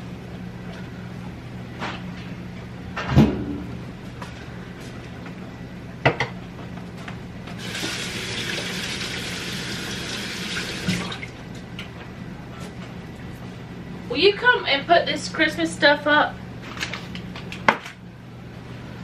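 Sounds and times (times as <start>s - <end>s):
faucet running over hands: 7.6s - 11.2s.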